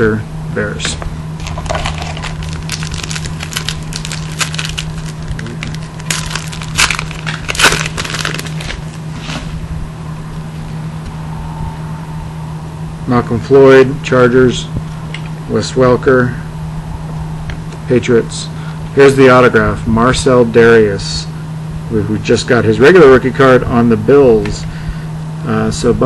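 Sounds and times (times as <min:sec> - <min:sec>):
foil wrapper tearing and crinkling: 0:01.4 - 0:09.0.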